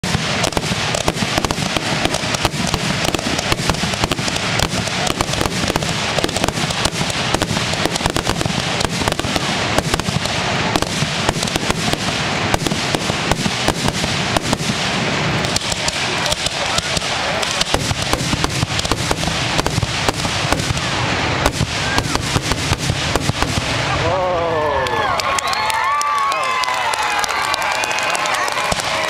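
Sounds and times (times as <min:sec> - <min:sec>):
fireworks shells bursting: 0:00.0 - 0:24.0.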